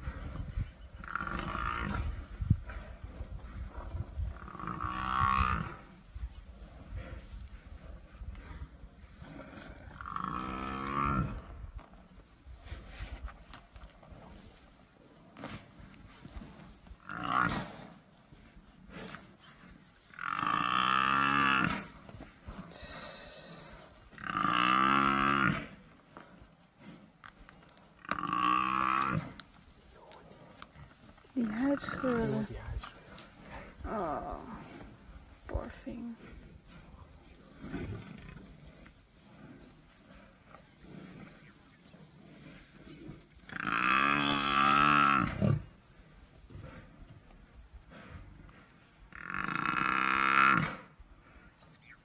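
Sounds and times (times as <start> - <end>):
buffalo bellowing: 22.9 - 25.8, 28.0 - 29.4, 37.5 - 45.7, 49.1 - 51.0.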